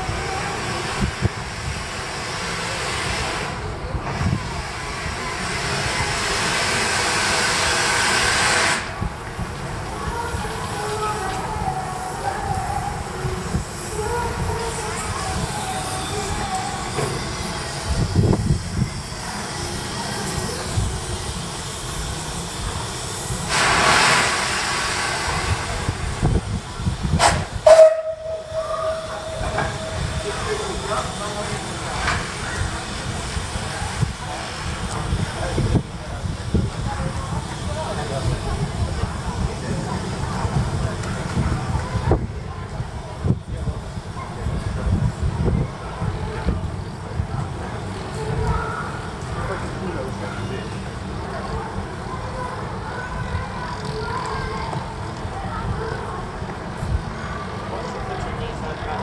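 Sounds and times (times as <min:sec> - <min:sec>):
steam hissing from locomotive: 0:00.0 - 0:54.4
steady high tone: 0:27.7 - 0:31.9.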